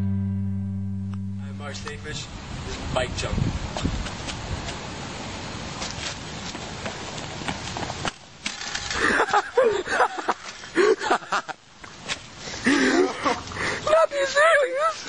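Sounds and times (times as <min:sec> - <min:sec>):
wind rumbling on microphone: 0:01.6 - 0:08.0
people laughing: 0:08.9 - 0:11.6, 0:12.6 - 0:15.0.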